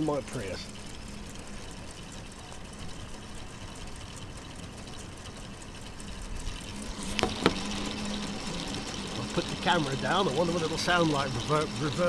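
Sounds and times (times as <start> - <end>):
toy motor and gears whirring: 0.0 - 12.0
sharp knocks: 7.1 - 7.6.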